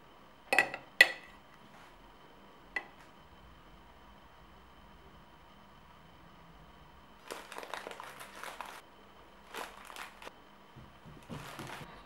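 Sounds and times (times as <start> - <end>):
plastic packaging crinkling: 7.2 - 8.8, 9.4 - 10.3, 11.2 - 11.9.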